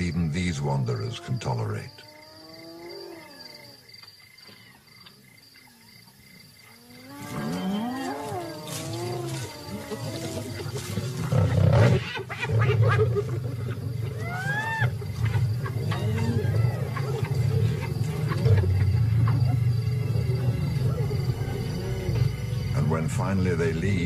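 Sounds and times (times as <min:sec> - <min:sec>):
lions snarling and growling: 0:06.6 - 0:24.0.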